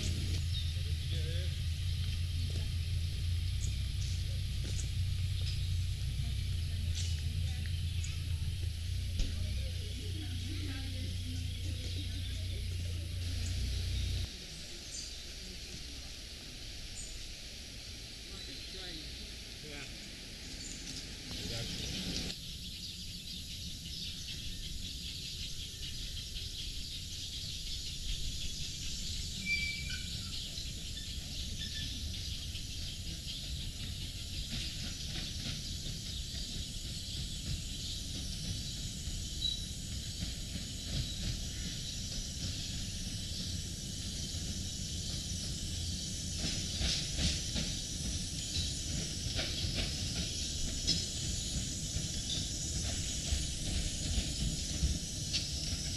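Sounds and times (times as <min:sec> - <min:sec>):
steam locomotive running: 0:00.0 - 0:55.9
steam hissing: 0:26.2 - 0:55.9.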